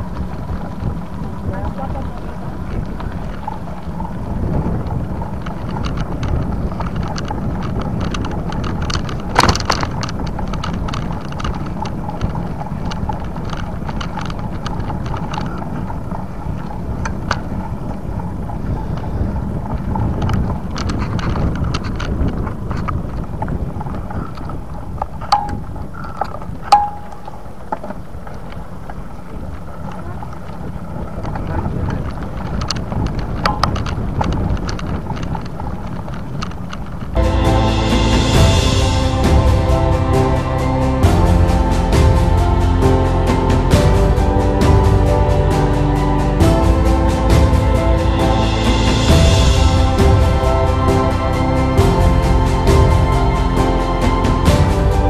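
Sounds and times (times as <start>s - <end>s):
bicycle clicks and rattles: 0.0s - 37.2s
tyre and road noise: 0.0s - 55.0s
wind buffeting microphone: 0.0s - 55.0s.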